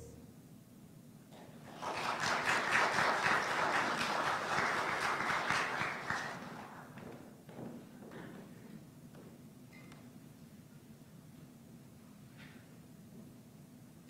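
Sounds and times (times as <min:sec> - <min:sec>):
congregation applauding: 0:01.6 - 0:07.2.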